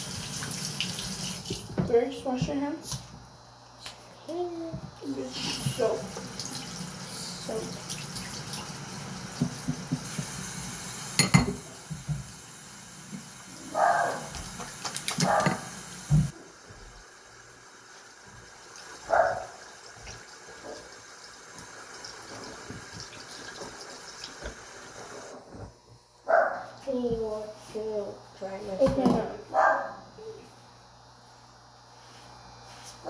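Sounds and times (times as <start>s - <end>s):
tap running into a sink: 9.3s - 10.4s, 21.5s - 24.7s.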